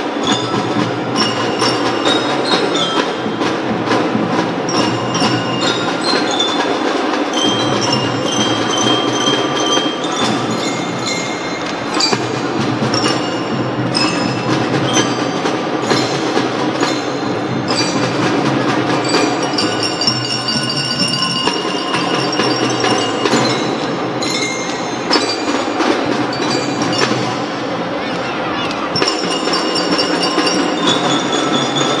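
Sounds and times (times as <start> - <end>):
drum band playing a march: 0.0 - 32.0
mallet percussion melody: 0.0 - 32.0.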